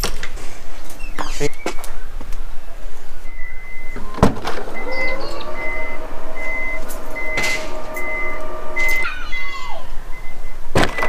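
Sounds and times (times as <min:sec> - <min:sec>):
short warning beeps: 0:03.3 - 0:09.1
tailgate motor whine: 0:03.4 - 0:09.3.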